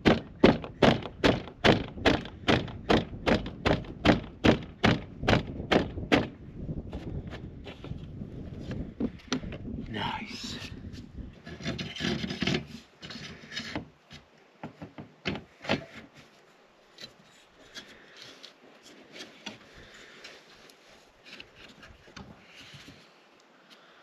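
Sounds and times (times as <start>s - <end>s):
metal rubbing and scraping: 11.4s - 13.9s.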